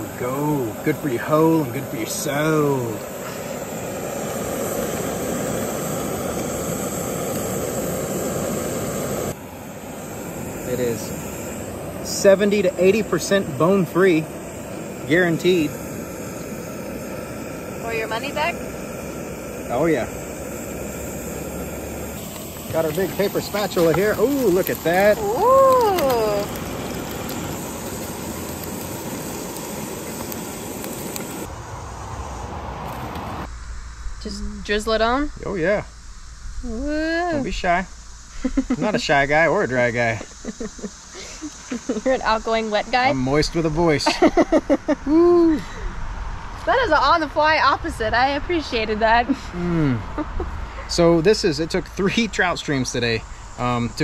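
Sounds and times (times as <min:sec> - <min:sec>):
steady rushing noise: 0:00.0 - 0:25.4
food sizzling in oil: 0:00.0 - 0:31.5, 0:33.0 - 0:45.6.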